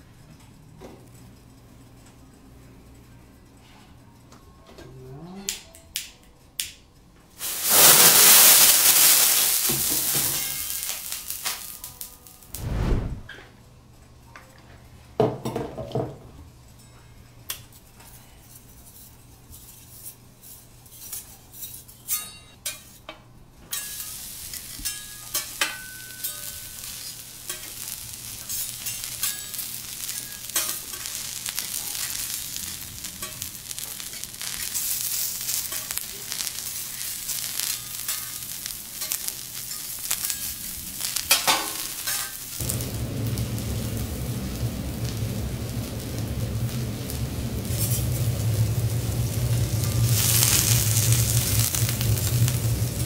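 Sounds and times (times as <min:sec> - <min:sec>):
vegetables sizzling on a griddle: 0:07.4 - 0:12.5, 0:23.7 - 0:53.0
low rumbling noise: 0:12.5 - 0:13.3, 0:42.6 - 0:53.0.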